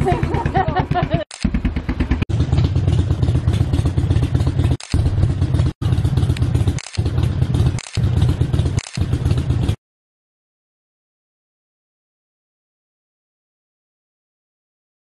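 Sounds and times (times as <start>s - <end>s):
motorcycle engines running: 0.0s - 9.8s.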